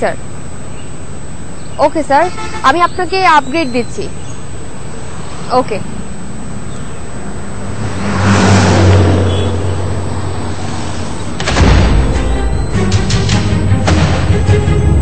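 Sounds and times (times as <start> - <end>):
low drone: 0.0 - 15.0
road vehicle passing: 2.1 - 11.5
dramatic music with pounding beat: 11.4 - 15.0
heavy boom: 11.4 - 15.0.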